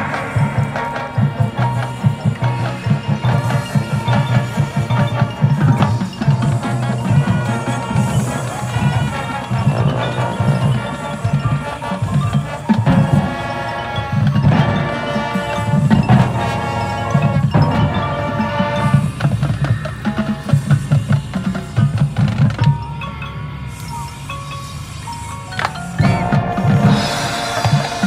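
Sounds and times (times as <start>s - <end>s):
brass chords: 0.0s - 21.4s, 25.0s - 28.0s
drums: 0.0s - 28.0s
mallet percussion ringing: 0.0s - 28.0s
marching band playing: 0.0s - 28.0s.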